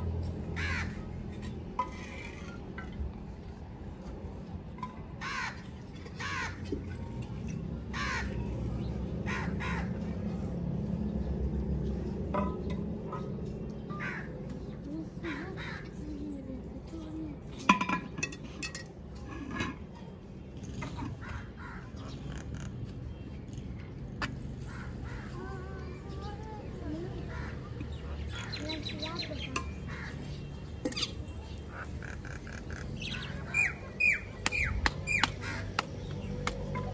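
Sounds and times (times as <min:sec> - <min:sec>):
crow cawing: 0:00.6 - 0:01.0.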